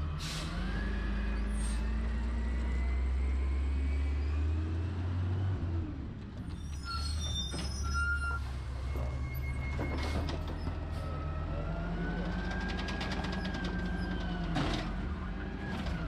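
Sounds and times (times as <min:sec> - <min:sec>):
diesel engine rumbling: 0:00.0 - 0:16.0
short high squeals: 0:06.5 - 0:10.1.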